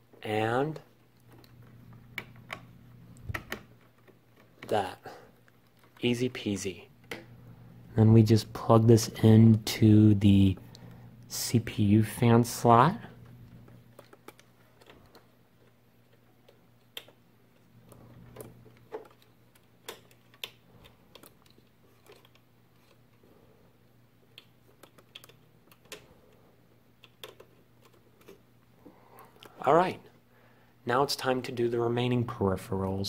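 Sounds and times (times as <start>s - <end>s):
steady low hum: 0.0s - 33.0s
clicks and taps of cables and connectors: 7.0s - 7.3s.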